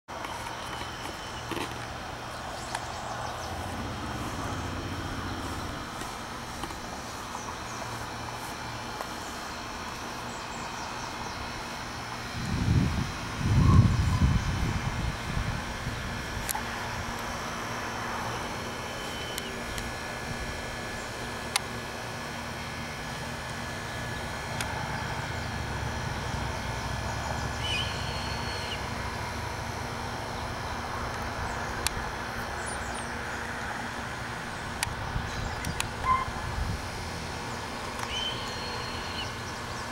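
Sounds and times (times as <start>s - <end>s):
low hum: 0.1s - 39.9s
low outdoor rumble: 0.1s - 39.9s
faint high bird chirps: 27.6s - 28.8s, 38.0s - 39.4s.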